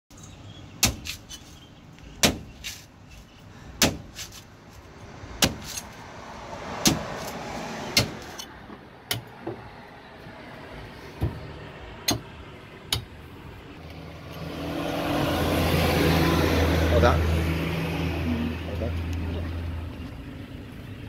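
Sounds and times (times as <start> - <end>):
machete chopping coconut husk: 0.8 - 1.4, 2.2 - 2.9, 3.8 - 4.5, 5.2 - 6.0, 6.6 - 8.5.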